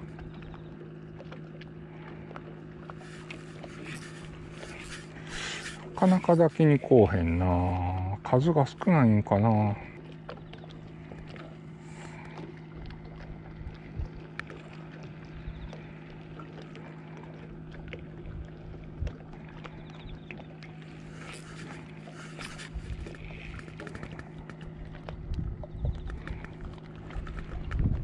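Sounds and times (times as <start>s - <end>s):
low mechanical hum: 0.0s - 28.0s
brief rustles: 21.1s - 24.2s.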